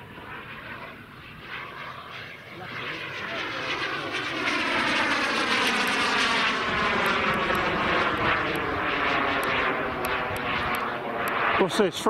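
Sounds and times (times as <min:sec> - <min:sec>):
jet engine roar with whine: 0:00.0 - 0:12.0.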